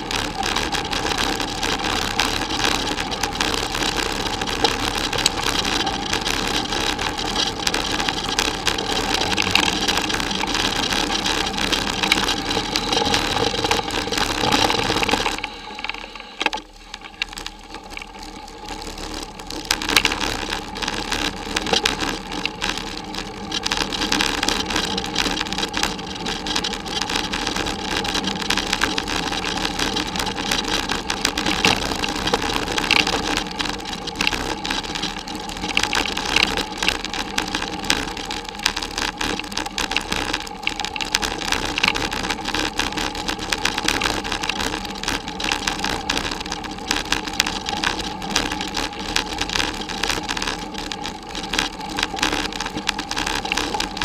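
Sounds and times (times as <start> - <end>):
steady hum: 0.0 - 38.3
bicycle rattling over dirt track: 0.0 - 54.0.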